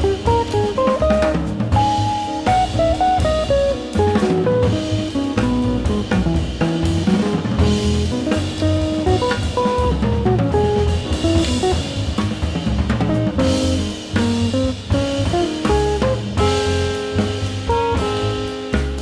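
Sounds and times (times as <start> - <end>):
double bass: 0.0 - 19.0
drum kit: 0.0 - 19.0
jazz band playing: 0.0 - 19.0.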